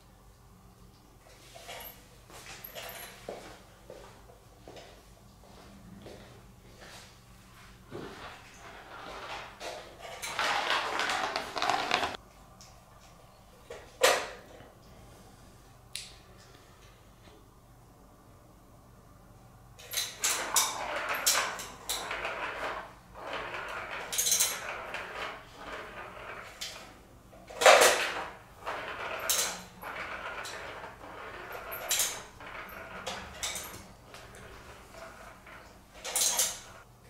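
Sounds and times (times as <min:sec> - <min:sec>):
plastic ball rolling and rattling: 0:08.6 - 0:12.2, 0:20.3 - 0:36.8.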